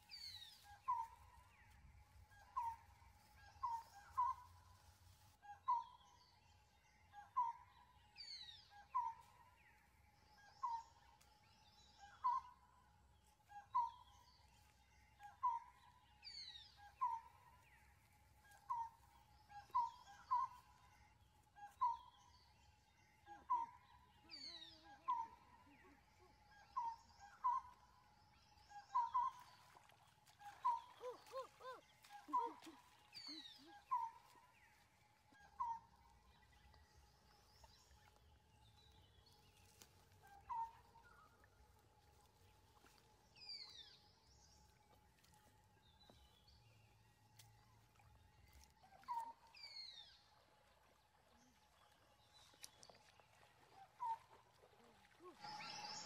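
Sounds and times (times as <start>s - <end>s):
bird calls: 0.0s - 4.9s, 13.4s - 22.6s, 23.2s - 41.6s, 52.3s - 56.0s.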